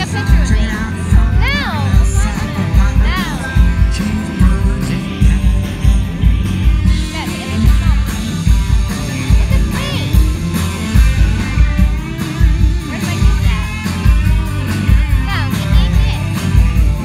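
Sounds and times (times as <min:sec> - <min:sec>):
person singing: 0:00.0 - 0:08.2
live rock band playing: 0:00.0 - 0:17.0.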